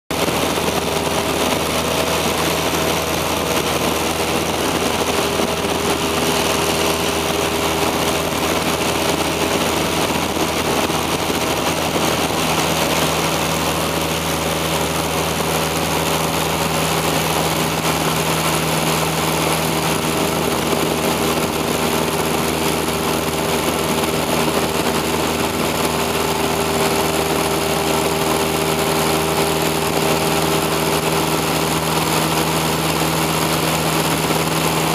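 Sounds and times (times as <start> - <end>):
airflow rushing: 0.1 - 34.9
plane engine and propeller droning: 0.1 - 34.9.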